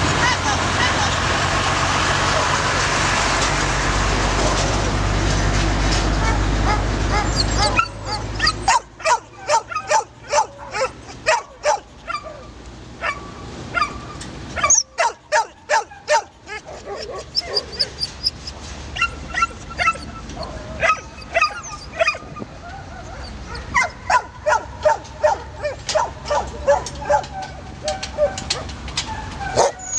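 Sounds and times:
dogs barking and yelping: 0.2s - 1.2s, 6.0s - 29.9s
dogs whining: 6.1s - 13.2s, 13.8s - 29.9s.

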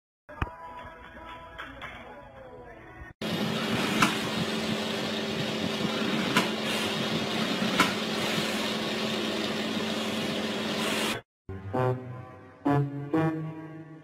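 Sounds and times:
store background hum: 3.2s - 11.2s.

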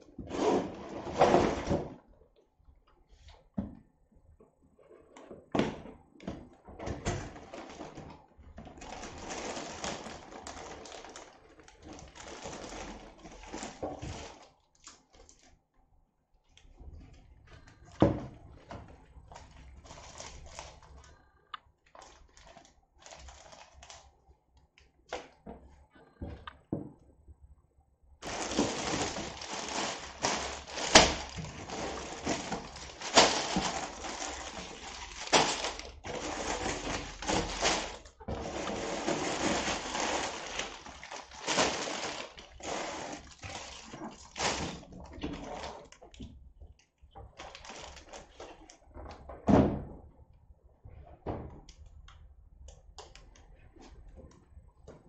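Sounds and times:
plastic bags crinkling: 7.2s - 15.5s, 17.7s - 21.2s, 21.9s - 24.1s, 28.2s - 46.2s, 47.2s - 48.8s.

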